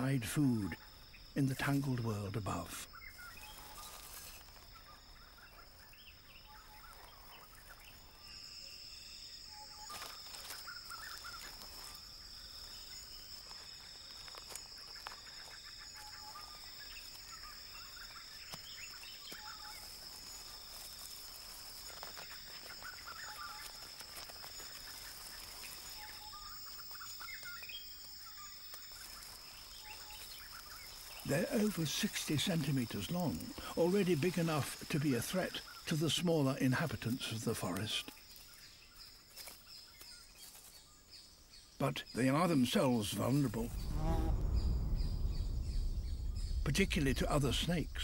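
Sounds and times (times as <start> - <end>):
high insect drone: 0.0 - 48.0
bird calls: 2.6 - 36.2.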